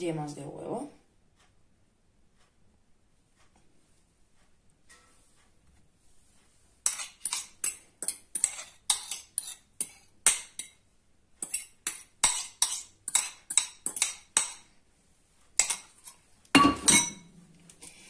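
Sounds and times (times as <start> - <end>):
fork scraping and tapping a bowl: 4.9 - 5.3, 6.8 - 10.8, 11.4 - 14.8, 15.6 - 18.0.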